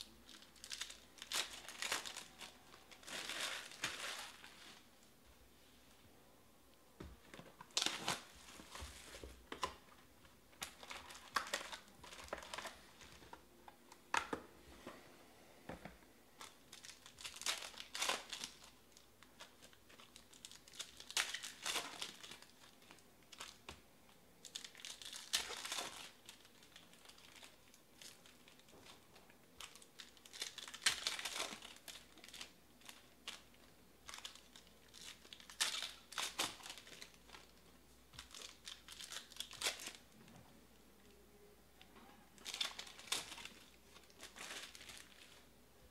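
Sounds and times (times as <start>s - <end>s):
foil card packs tearing and crinkling: 0.3s - 4.5s, 16.4s - 18.7s, 24.5s - 28.7s, 29.6s - 33.4s.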